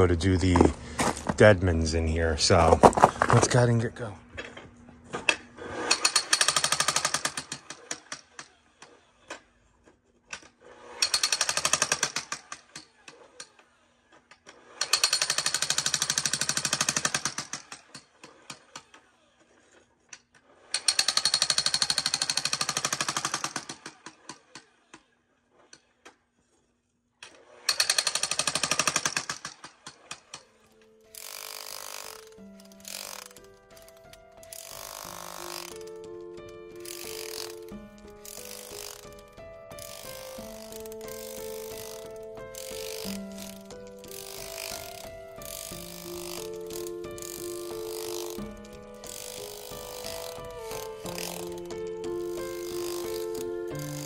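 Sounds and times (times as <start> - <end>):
jackhammer hammering: 5.6 - 8.5, 10.7 - 13.3, 14.6 - 18.9, 20.7 - 24.8, 27.4 - 54.0.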